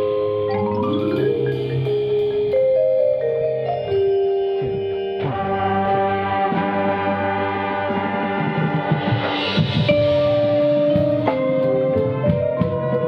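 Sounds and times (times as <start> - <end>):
vibraphone notes ringing: 0.0 - 6.1
percussion ensemble: 0.0 - 13.0.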